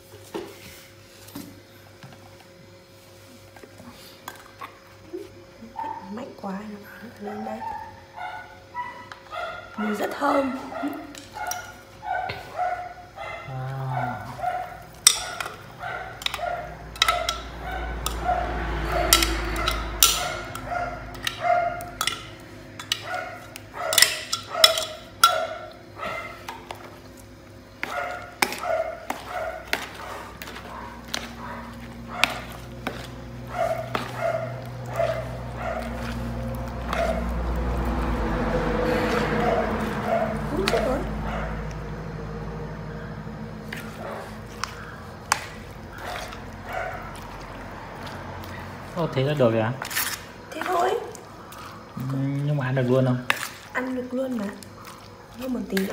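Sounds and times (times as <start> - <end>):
dog yipping: 7.2 - 21.9, 27.8 - 36.2, 38.9 - 41.6, 45.9 - 47.3.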